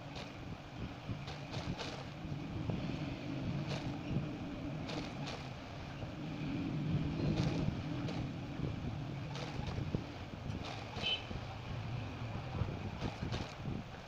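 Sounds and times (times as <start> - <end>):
sewing machine running: 4.8 - 5.6, 7.0 - 8.4, 9.2 - 9.9.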